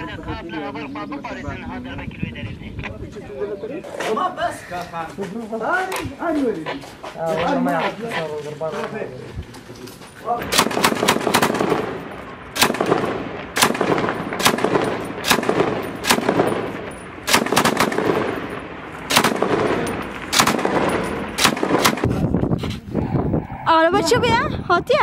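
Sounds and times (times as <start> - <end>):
machine gun firing with echo: 10.4 - 22.2.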